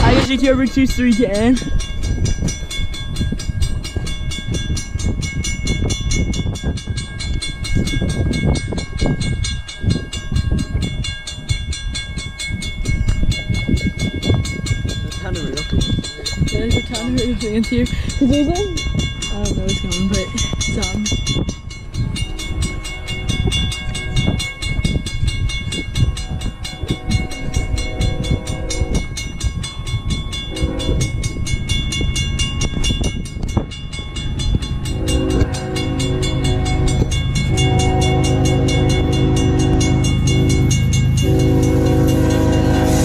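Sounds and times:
crossing bell ringing: 0.0s - 43.0s
locomotive engine rumble: 0.0s - 43.0s
train horn blasts: 26.2s - 29.1s, 30.5s - 31.4s, 34.8s - 43.0s.

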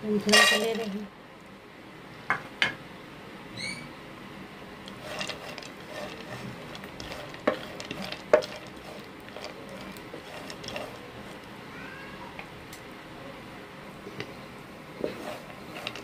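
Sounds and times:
dried fruit sizzling in ghee: 0.0s - 1.1s, 4.8s - 11.7s, 13.9s - 16.0s
brief high squeak: 3.5s - 3.9s.

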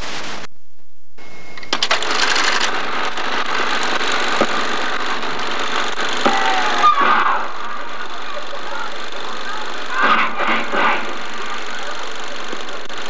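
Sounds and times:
tape hiss: 0.0s - 13.0s
sharp clicks: 1.5s - 7.4s
movie projector running: 1.6s - 13.0s.

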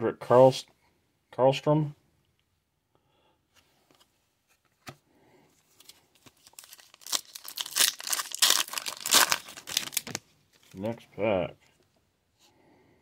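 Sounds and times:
foil wrapper crinkling and tearing: 6.2s - 10.8s.

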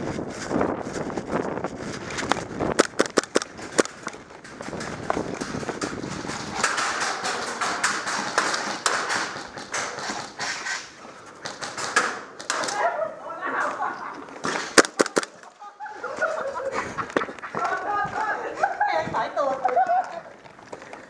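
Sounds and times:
hurried footsteps on concrete: 0.0s - 12.4s, 14.2s - 21.0s
sharp taps and clicks: 2.2s - 4.3s, 14.8s - 15.5s.

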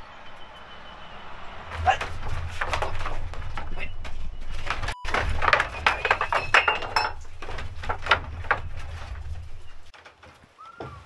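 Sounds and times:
clinking and clattering: 1.8s - 10.3s.

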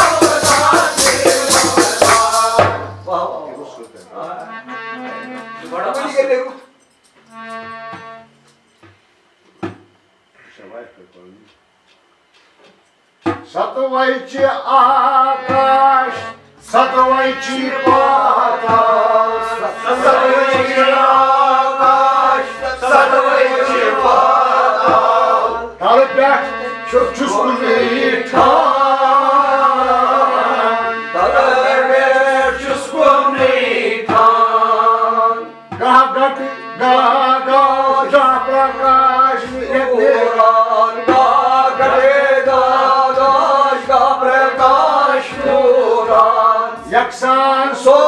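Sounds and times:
hand drum beating: 0.0s - 3.0s
low regular beat: 0.0s - 3.1s, 15.4s - 36.2s, 36.8s - 47.4s
group chanting a hymn: 0.0s - 6.0s, 13.5s - 48.0s
sustained instrumental tones: 0.0s - 8.8s, 14.7s - 48.0s.

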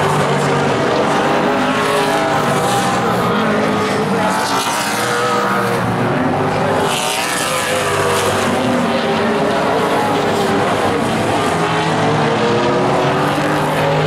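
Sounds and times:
race car engines roaring: 0.0s - 14.0s.

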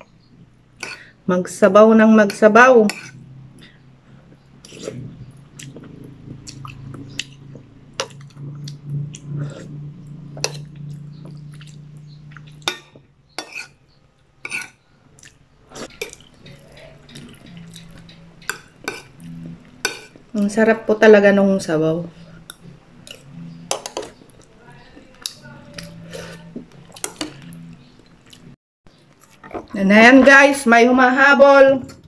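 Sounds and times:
low steady hum: 0.0s - 32.0s
soft chewing: 2.9s - 20.3s, 22.2s - 29.8s.

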